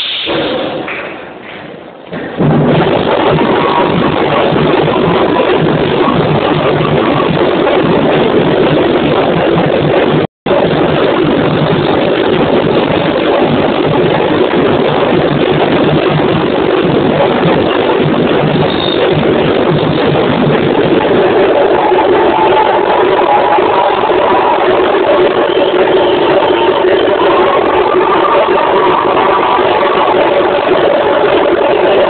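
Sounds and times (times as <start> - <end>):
samba drum section playing: 10.9 - 32.0.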